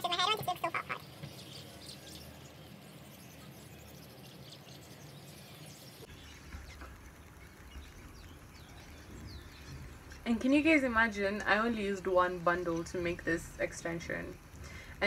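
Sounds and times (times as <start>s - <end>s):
bird chirps: 0.0s - 11.9s
steady low hum: 0.0s - 15.0s.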